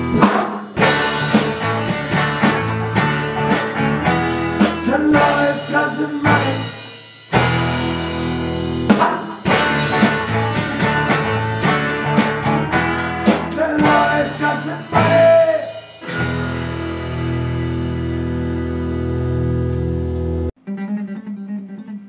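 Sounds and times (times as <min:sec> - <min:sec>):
quick drum hits: 0:00.0 - 0:05.5, 0:08.8 - 0:14.4
rock band playing: 0:00.0 - 0:20.6
guitars ringing on held chords: 0:00.7 - 0:06.7, 0:07.3 - 0:22.0.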